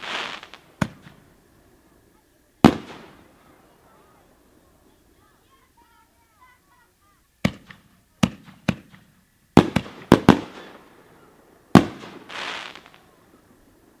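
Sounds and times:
firework shells bursting: 0.0 - 4.6, 7.4 - 14.0.

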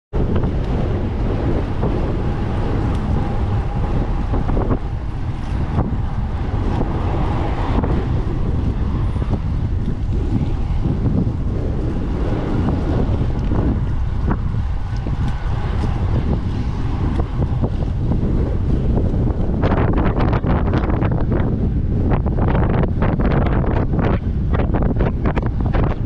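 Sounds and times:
wind buffeting microphone: 0.1 - 26.0.

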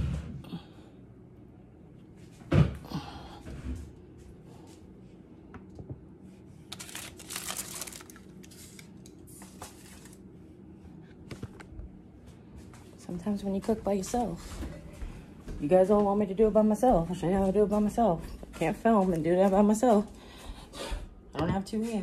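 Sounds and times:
aluminium foil crinkling: 6.6 - 10.3.

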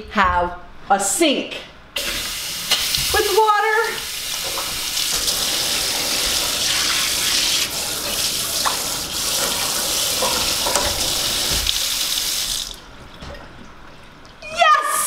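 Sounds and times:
water spraying into sink: 2.0 - 12.8.

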